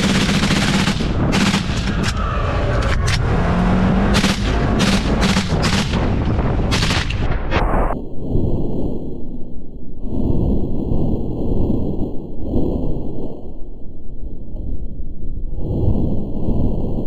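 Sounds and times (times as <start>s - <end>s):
rifle firing rapid shots: 0.0s - 2.1s, 3.9s - 7.3s
utility vehicle engine running: 0.0s - 7.1s.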